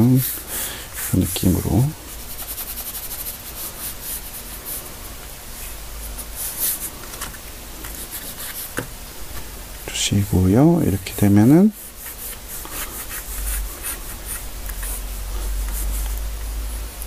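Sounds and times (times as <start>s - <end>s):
pencil scratching on paper: 1.0s - 4.8s, 7.9s - 8.7s, 11.8s - 15.1s, 15.7s - 16.2s.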